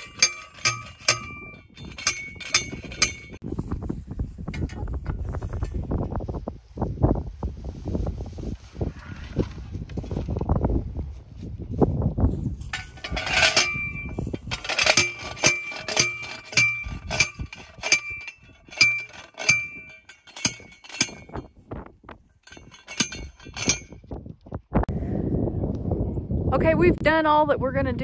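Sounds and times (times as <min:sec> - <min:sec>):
post driver clanking on steel post: 0:00.0 - 0:03.4, 0:12.6 - 0:21.5, 0:22.4 - 0:24.0.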